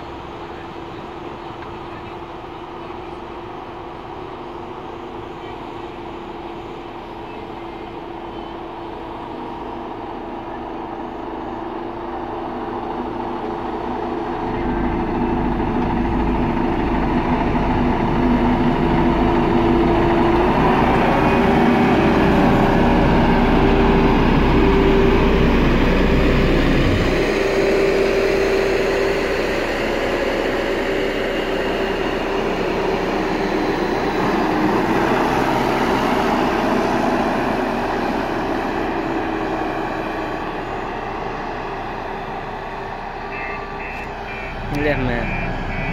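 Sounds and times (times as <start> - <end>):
road roller diesel engine: 0.0 - 45.9
deep rumble: 8.7 - 45.9.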